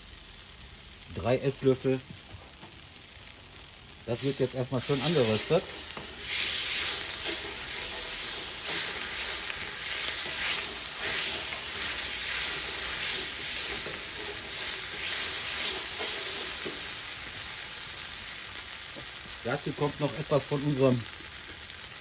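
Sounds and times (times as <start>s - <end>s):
paste sizzling in hot oil: 0.0s - 22.0s
wooden spoon scraping pan: 4.8s - 17.0s.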